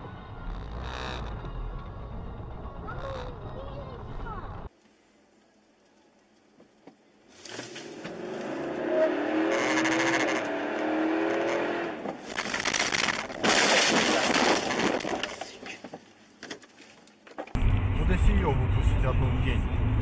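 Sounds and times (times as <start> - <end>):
car engine humming: 0.0 - 4.7, 7.8 - 13.0
road noise: 0.0 - 20.0.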